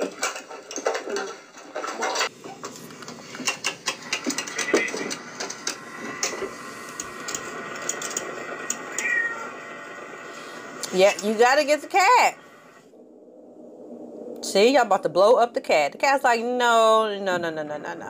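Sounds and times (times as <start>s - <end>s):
cat meow: 8.7s - 9.6s.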